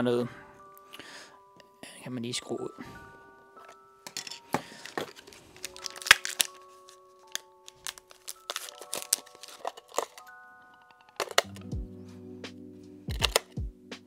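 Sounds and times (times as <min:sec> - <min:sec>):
plastic clicks and rattles: 0:03.6 - 0:11.7, 0:13.1 - 0:13.6.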